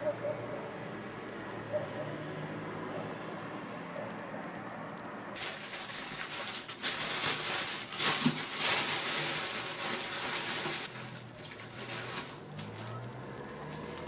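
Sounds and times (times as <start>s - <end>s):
plastic bag crinkling: 5.3s - 14.0s.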